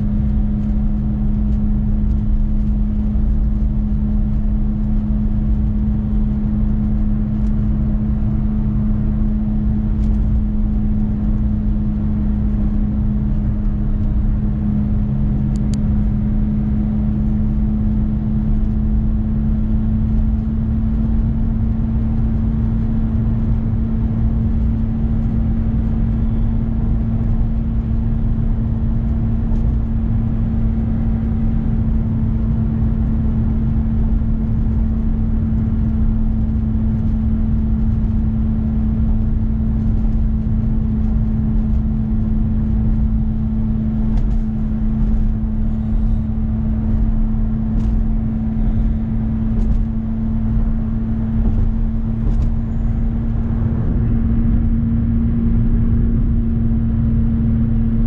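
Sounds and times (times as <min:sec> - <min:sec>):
road noise: 0:00.0 - 0:56.0
car engine drone: 0:00.0 - 0:58.0.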